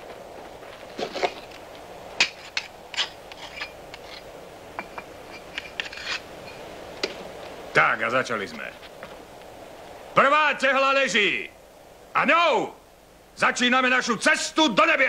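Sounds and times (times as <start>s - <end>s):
steady background noise: 0.0s - 15.0s
bricks and tools clinking: 2.2s - 4.2s, 4.8s - 6.6s.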